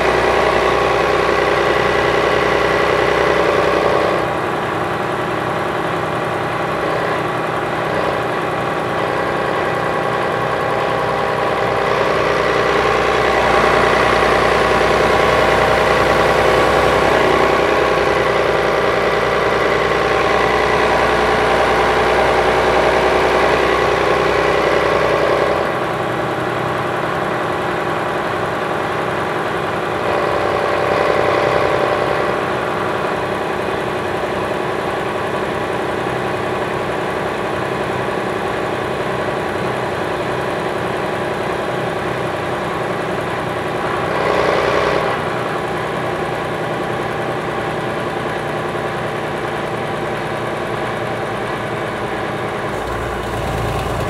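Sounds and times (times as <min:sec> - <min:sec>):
diesel coach engine idling: 0:00.0 - 0:44.2, 0:45.1 - 0:54.0.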